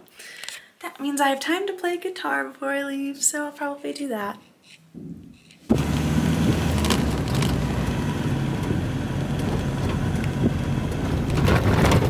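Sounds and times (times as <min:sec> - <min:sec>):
road and engine noise in van: 0:05.7 - 0:12.0.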